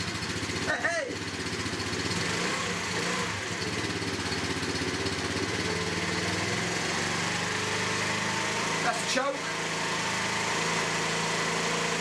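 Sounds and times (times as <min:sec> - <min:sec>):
scooter engine idling: 0:00.0 - 0:06.5.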